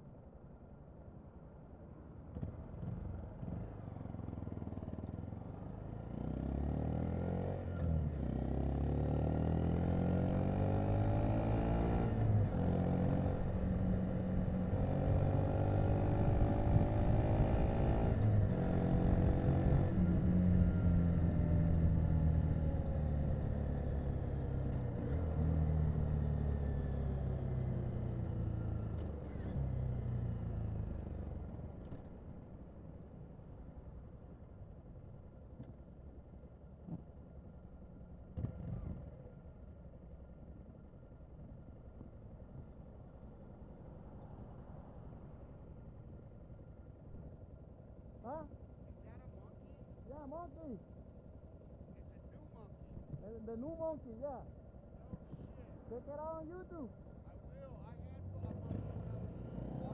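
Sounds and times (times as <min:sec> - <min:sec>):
motorcycle engine accelerating: 0:02.8 - 0:32.2, 0:58.1 - 0:59.9.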